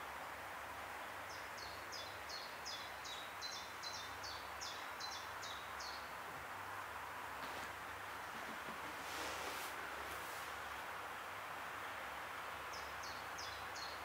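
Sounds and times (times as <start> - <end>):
background hiss: 0.0 - 14.0
songbird singing: 1.2 - 6.2, 12.6 - 14.0.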